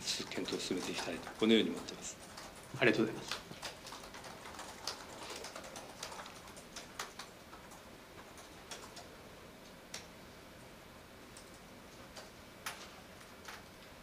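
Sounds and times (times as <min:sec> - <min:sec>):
low room hiss: 0:00.0 - 0:14.0
laptop keyboard typing: 0:00.1 - 0:10.1, 0:11.3 - 0:14.0.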